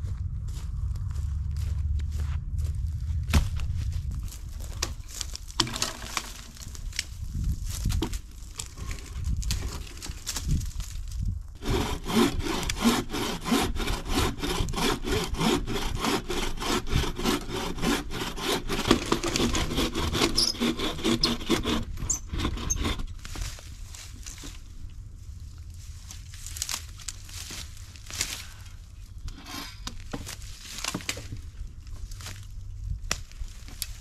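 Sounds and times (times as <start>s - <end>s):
hand saw cutting wood: 11.6s - 23.5s, 29.3s - 30.0s.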